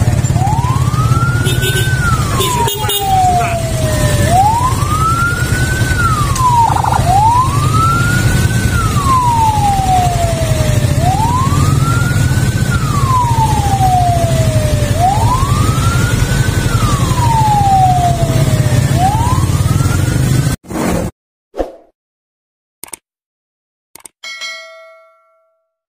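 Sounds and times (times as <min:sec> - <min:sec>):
ambulance siren wailing: 0:00.0 - 0:20.6.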